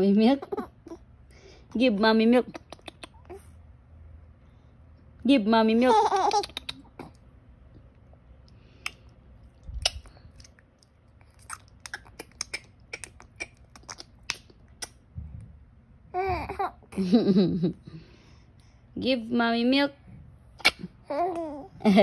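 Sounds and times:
infant babbling and laughing: 16.2s - 17.0s.

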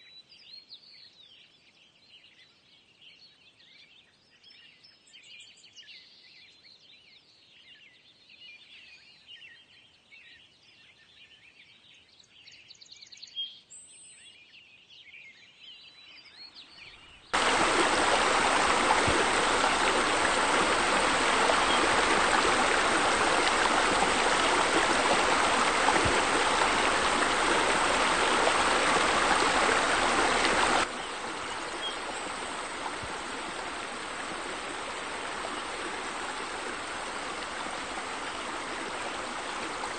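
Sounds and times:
faint birdsong: 0.0s - 39.9s
churning water rushing: 17.4s - 39.9s.

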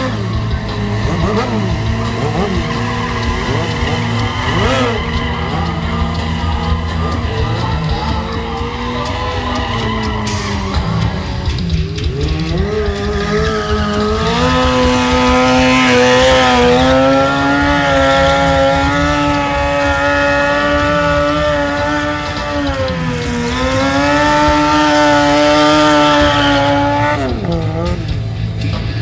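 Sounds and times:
motorcycle engine revving high: 0.0s - 28.8s.

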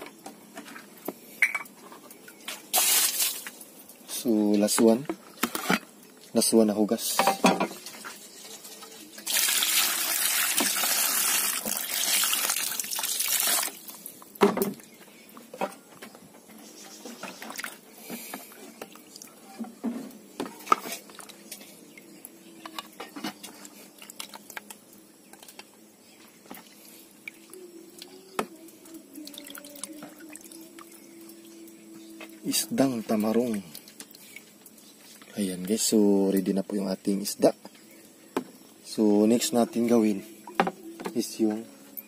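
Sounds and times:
water splashing in a basin: 2.2s - 4.0s, 8.6s - 15.0s, 17.0s - 19.6s, 20.5s - 21.6s, 23.4s - 25.6s, 29.1s - 36.4s.

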